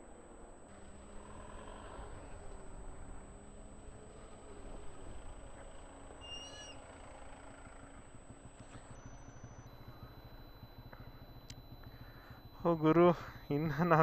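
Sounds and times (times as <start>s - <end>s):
vehicles idling in traffic: 0.0s - 14.0s.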